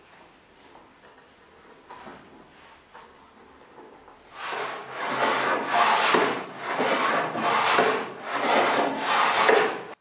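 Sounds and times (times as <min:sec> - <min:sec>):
hand plane shaving wood: 0:04.3 - 0:10.0.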